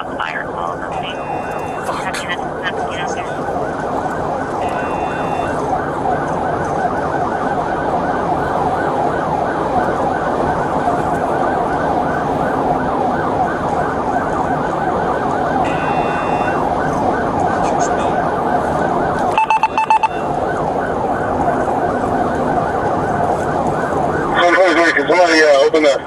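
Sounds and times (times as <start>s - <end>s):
police siren yelping: 0.0s - 26.0s
brief high electronic tone: 4.6s - 5.6s.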